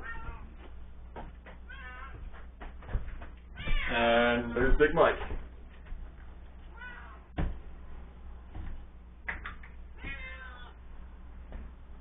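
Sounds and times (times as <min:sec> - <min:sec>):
cat meowing: 0:00.0 - 0:00.5, 0:01.7 - 0:02.2, 0:03.5 - 0:04.0, 0:06.7 - 0:07.3, 0:10.0 - 0:10.8.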